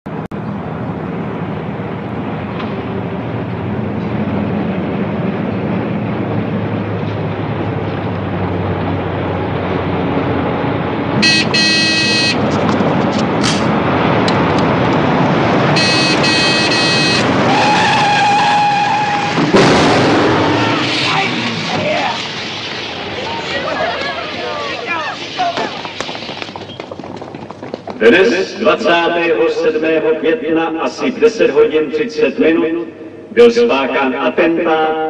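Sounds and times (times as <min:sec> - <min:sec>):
steady high tone: 0:11.2 - 0:12.4, 0:15.8 - 0:17.4
shrill squeals: 0:15.8 - 0:19.4.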